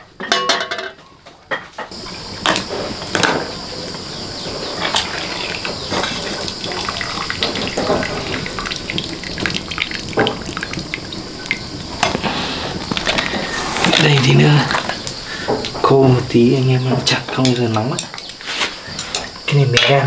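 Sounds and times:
broth dripping into a pot: 0:01.9 - 0:15.8.

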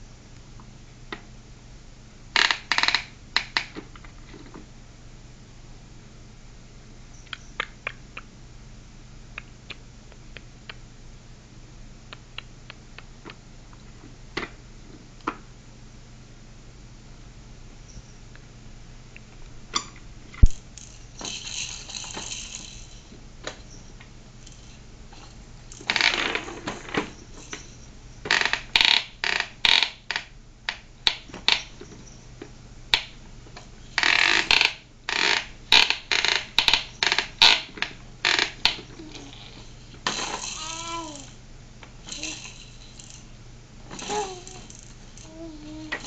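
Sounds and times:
toys rattling: 0:20.4 - 0:23.7, 0:24.4 - 0:27.9, 0:36.1 - 0:41.4, 0:42.0 - 0:46.0.

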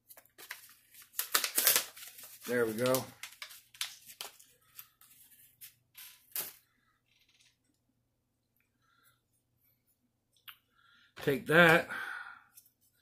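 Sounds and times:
plastic packaging crinkling: 0:00.1 - 0:05.0.

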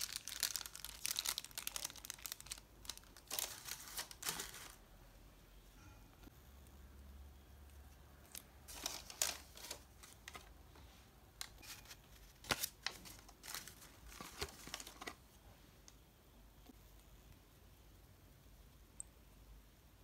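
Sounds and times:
paper and card rustling: 0:00.0 - 0:04.8, 0:08.3 - 0:10.6, 0:11.4 - 0:15.3.

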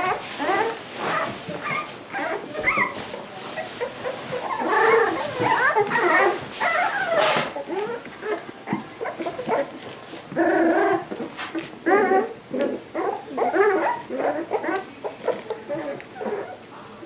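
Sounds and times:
puppies whimpering and whining: 0:00.0 - 0:17.0.

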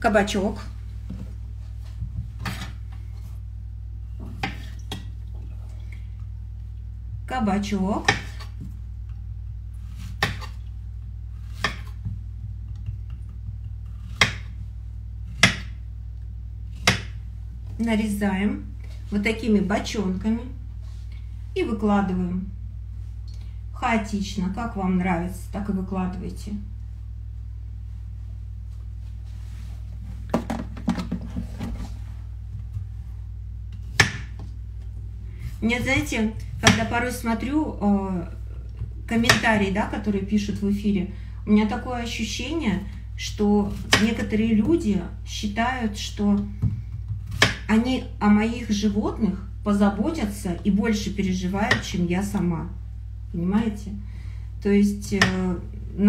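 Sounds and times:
steady low hum: 0:00.0 - 0:56.0
knife chopping on cutting board: 0:02.4 - 0:02.8, 0:08.0 - 0:08.6, 0:09.9 - 0:10.6, 0:11.4 - 0:12.2, 0:12.8 - 0:14.6, 0:15.3 - 0:15.7, 0:16.8 - 0:17.2, 0:33.9 - 0:34.4, 0:35.8 - 0:36.9, 0:43.7 - 0:44.7, 0:46.6 - 0:47.7.

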